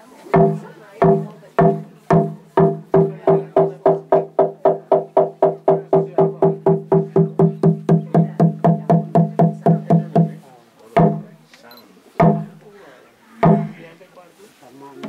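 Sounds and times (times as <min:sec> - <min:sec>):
slit drum strokes: 0:00.3 - 0:11.3, 0:13.4 - 0:13.9.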